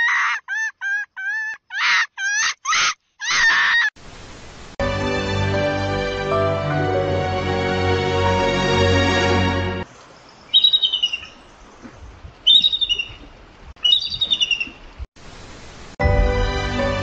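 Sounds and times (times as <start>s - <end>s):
eagle high-pitched chirping call: 12.5s - 13.2s.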